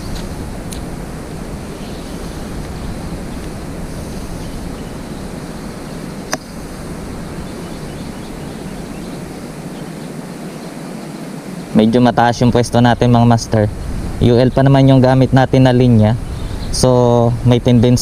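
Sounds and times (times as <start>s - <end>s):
sharp click: 6.3s - 6.5s.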